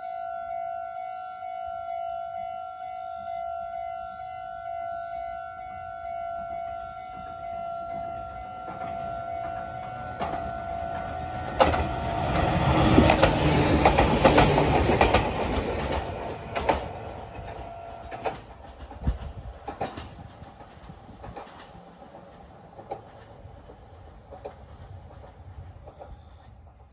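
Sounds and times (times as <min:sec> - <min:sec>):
level crossing alarm ringing: 0:00.0 - 0:13.2
train wheels clattering: 0:08.0 - 0:26.9.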